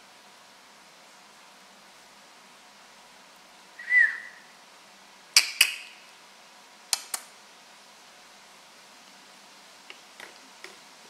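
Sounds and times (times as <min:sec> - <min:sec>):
parrot whistle: 0:03.8 - 0:04.6
parrot sharp clicks: 0:05.4 - 0:06.0, 0:06.9 - 0:07.3.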